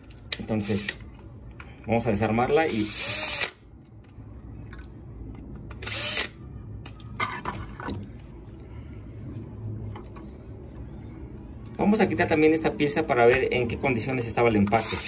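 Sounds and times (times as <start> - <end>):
cordless drill running: 0.7 - 1.0, 2.8 - 3.5, 14.8 - 15.0.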